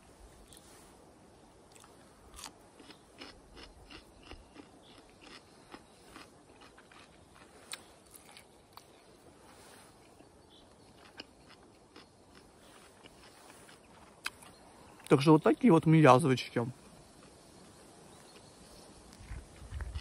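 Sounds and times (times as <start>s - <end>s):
person chewing chicken wing: 1.7s - 9.0s, 10.9s - 14.5s.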